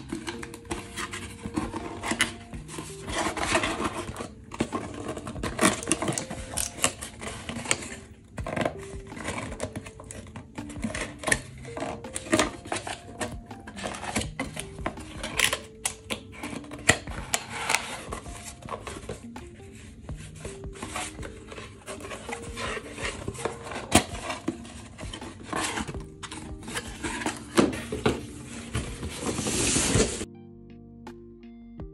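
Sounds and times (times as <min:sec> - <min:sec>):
cardboard box being folded: 0:00.0 - 0:30.3
soft music: 0:00.0 - 0:31.9.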